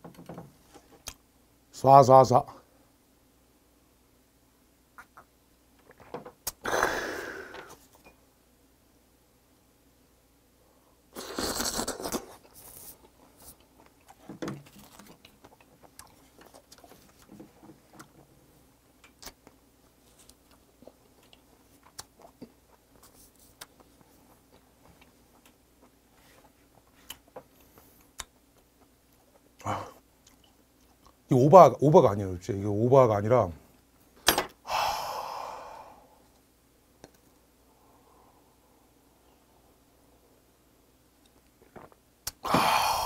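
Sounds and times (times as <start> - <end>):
wet slurp: 11.2 - 12.4.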